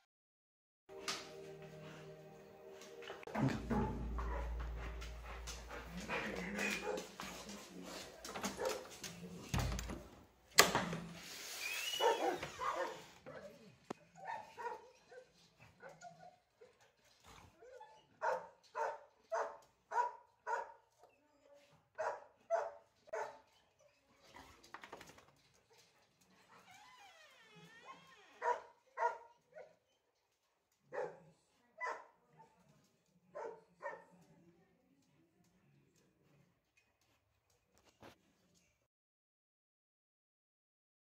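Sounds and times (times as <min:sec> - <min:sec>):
dog barking: 0:06.4 - 0:07.2, 0:08.4 - 0:08.9, 0:12.0 - 0:13.5, 0:14.2 - 0:16.0, 0:18.2 - 0:20.8, 0:22.0 - 0:23.4, 0:28.4 - 0:29.8, 0:30.9 - 0:31.2, 0:31.8 - 0:32.5, 0:33.3 - 0:34.2.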